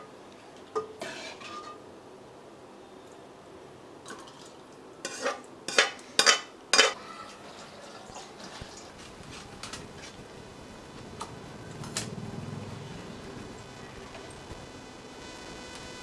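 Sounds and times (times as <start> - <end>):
metal ladle scraping steel pan: 0.8 - 1.8, 5.1 - 7.0.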